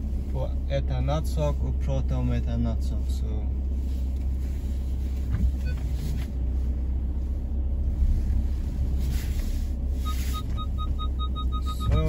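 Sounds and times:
car engine idling: 0.0s - 12.0s
car warning chime beeping: 10.0s - 12.0s.

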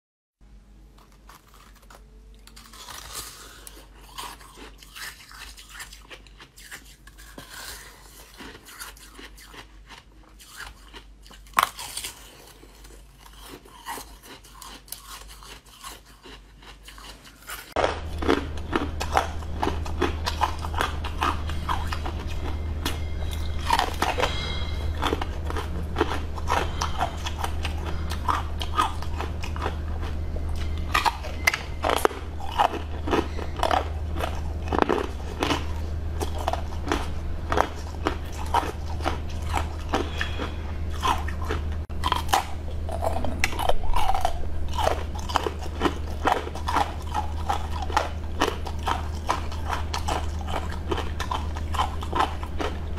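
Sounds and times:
low hum: 0.4s - 4.9s, 17.8s - 52.9s
chewing crunchy sweets: 0.6s - 52.9s.

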